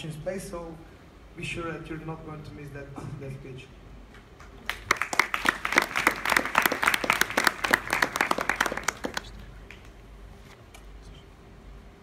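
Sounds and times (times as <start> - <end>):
audience applauding: 4.4 - 10.0.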